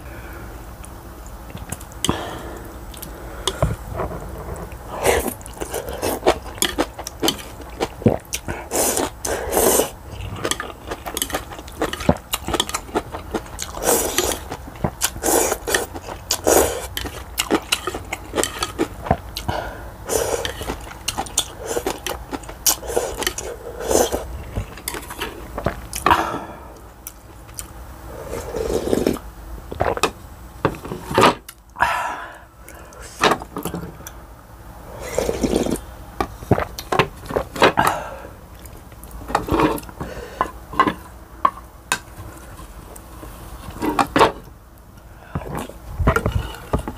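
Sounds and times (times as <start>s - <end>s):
slurping and chewing noodles: 2.9s - 26.4s, 27.0s - 30.2s, 34.9s - 41.1s, 45.2s - 46.9s.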